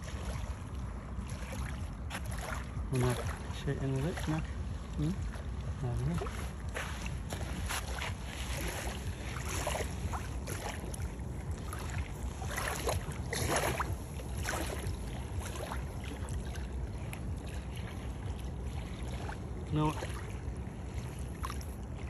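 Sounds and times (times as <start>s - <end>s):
wind rumbling on microphone: 0.0s - 22.0s
rustles and scrapes on sand: 6.0s - 10.4s.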